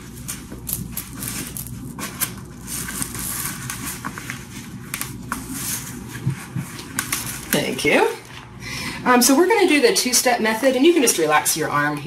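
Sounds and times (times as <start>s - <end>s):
velcro crackling: 0.0s - 5.9s
rustles and clicks of handling: 0.0s - 8.5s.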